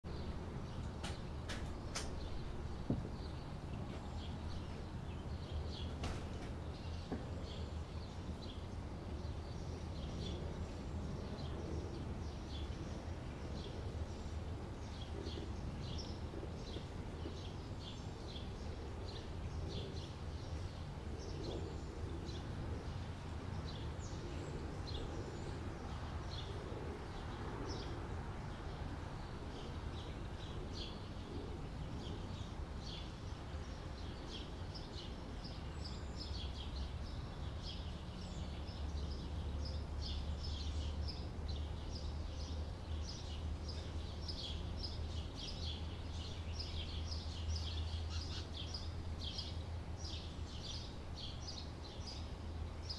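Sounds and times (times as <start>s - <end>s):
small birds chirping: 0.1s - 52.9s.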